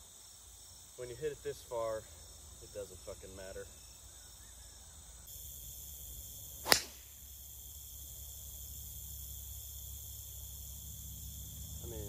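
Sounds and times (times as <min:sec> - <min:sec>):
insects chirring: 0:00.0 - 0:12.0
golf club striking ball: 0:06.6 - 0:07.1.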